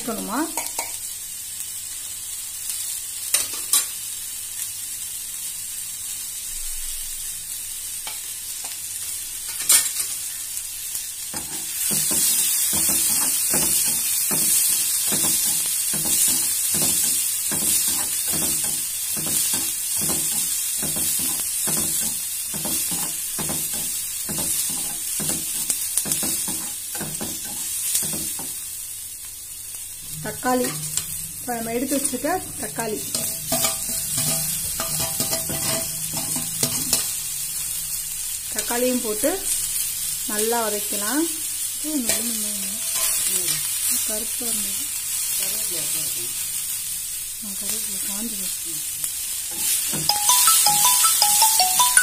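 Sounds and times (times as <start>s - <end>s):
onions sizzling in oil: 0.0s - 52.0s
spatula scraping a pan: 33.0s - 37.2s, 42.1s - 43.3s.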